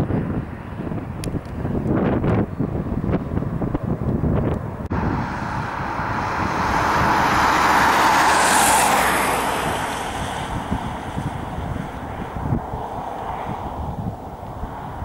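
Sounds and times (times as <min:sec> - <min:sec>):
wind buffeting microphone: 0:00.0 - 0:15.0
car passing by: 0:04.9 - 0:15.0.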